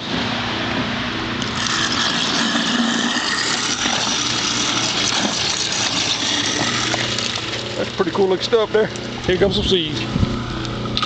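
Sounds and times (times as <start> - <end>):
garbage disposal motor hum: 0.0 - 11.0
water rushing down drain: 1.6 - 8.0.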